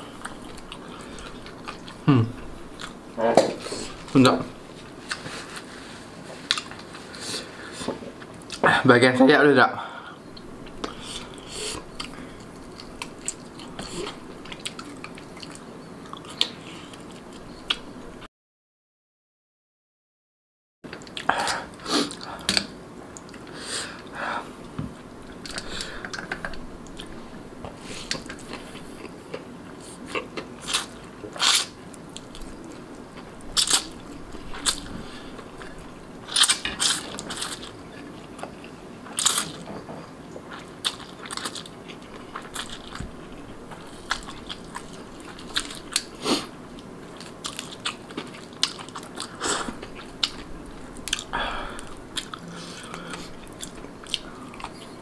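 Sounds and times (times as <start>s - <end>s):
slurping and chewing noodles: 25.3s - 39.6s.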